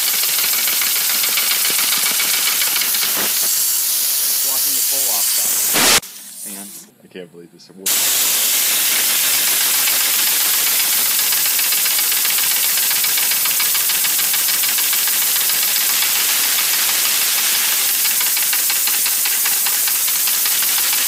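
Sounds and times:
fast faint ticking: 0.0s - 3.7s, 8.3s - 21.0s
compressed air hissing: 0.0s - 6.9s, 7.9s - 21.0s.

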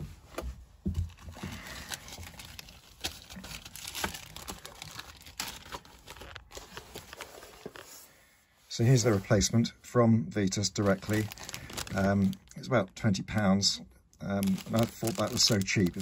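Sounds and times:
plastic bag crinkling: 1.1s - 7.8s, 10.8s - 13.5s, 14.4s - 16.0s.

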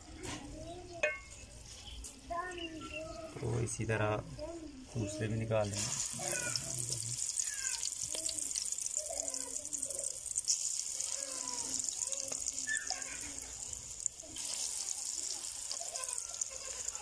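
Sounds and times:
batter frying in hot oil: 5.6s - 17.0s.

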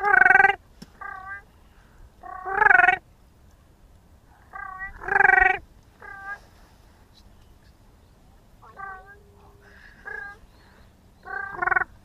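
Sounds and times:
geese cronk calls: 0.0s - 1.4s, 2.2s - 3.0s, 4.5s - 6.4s, 8.6s - 12.0s.

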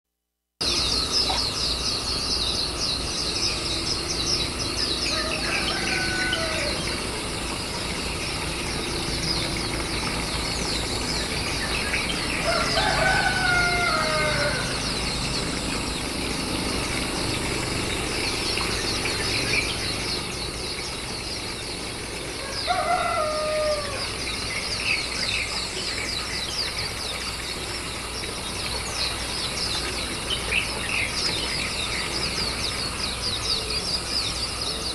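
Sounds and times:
insects chirring: 0.6s - 34.9s
bird drawn-out falling calls: 12.3s - 15.6s.

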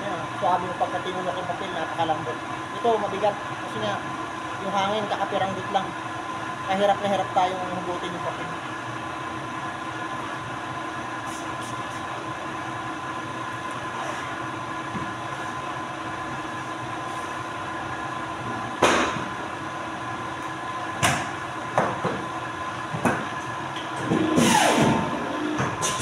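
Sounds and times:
paper cutter machine humming: 8.6s - 26.0s.

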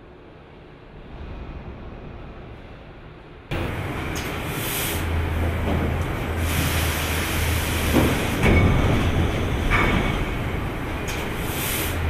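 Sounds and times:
low machinery hum: 0.0s - 12.0s
hissing air: 3.5s - 9.4s, 10.6s - 12.0s
heavy machine clunks: 3.5s - 12.0s.

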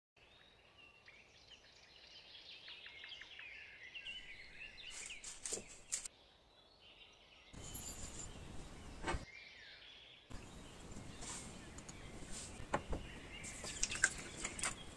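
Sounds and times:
small birds chirping: 0.2s - 14.9s
glass clink: 7.6s - 8.4s.

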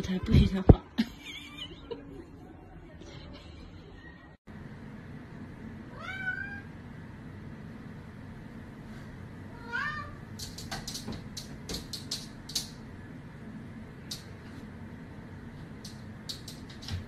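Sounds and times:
cat meowing: 5.9s - 6.7s, 9.5s - 10.2s
paws tapping and scraping mirror: 10.3s - 12.8s, 15.6s - 17.0s.

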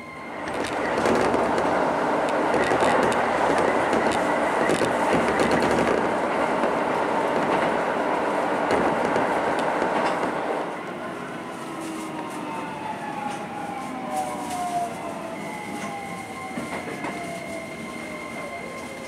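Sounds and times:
train wheels rumbling on rail: 0.3s - 19.0s
rail joint clicks: 0.4s - 11.0s.

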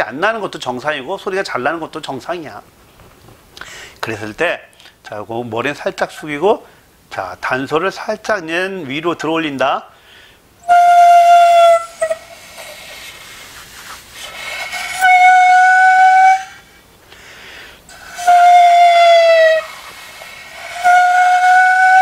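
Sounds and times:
breathy air hiss: 3.5s - 5.2s, 5.9s - 7.4s, 9.8s - 22.0s
bamboo flute notes: 10.6s - 13.0s, 14.2s - 16.6s, 18.0s - 22.0s.

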